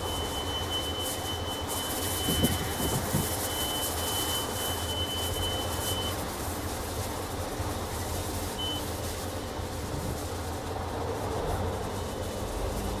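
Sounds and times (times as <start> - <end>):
thin high whine: 0.0 - 6.2.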